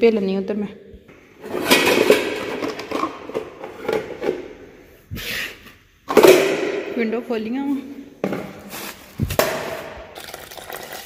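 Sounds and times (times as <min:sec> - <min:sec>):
bowls clattering in dish rack: 0:01.4 - 0:04.6.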